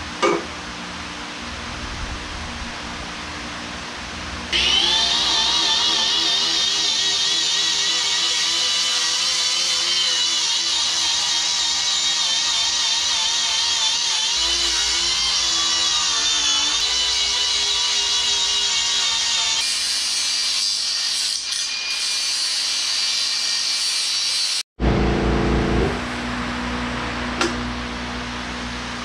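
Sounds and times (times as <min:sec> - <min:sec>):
angle grinder whining: 0:04.5 - 0:20.1
steady hum: 0:24.8 - 0:29.0.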